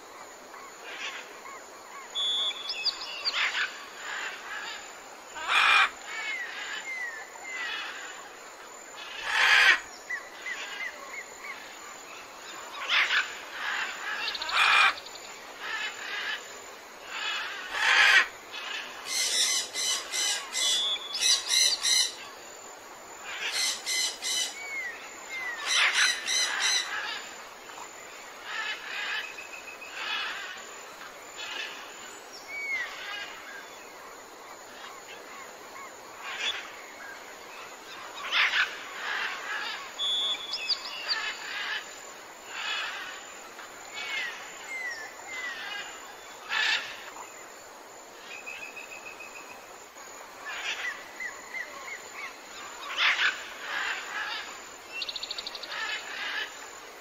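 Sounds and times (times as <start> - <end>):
wild birds calling and chirping: 0.4 - 57.0.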